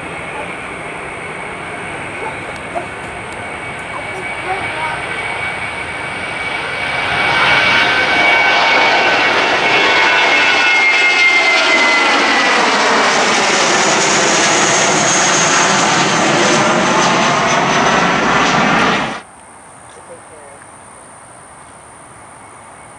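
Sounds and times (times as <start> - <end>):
high fan whine: 0.0 - 10.7
jet engine roar: 0.0 - 19.3.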